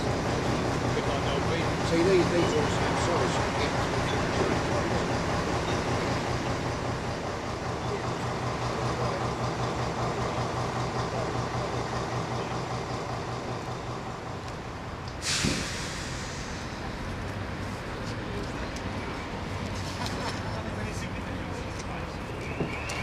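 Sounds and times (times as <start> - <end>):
diesel engine running: 0.0 - 23.0
short sudden hiss: 15.2 - 16.6.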